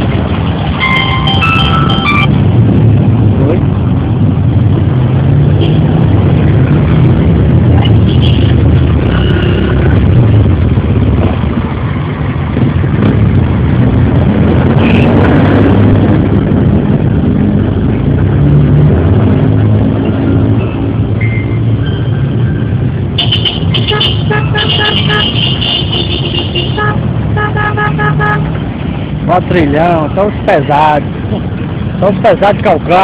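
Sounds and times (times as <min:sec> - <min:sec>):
dirt bikes and trucks driving on gravel: 0:28.4 - 0:33.0.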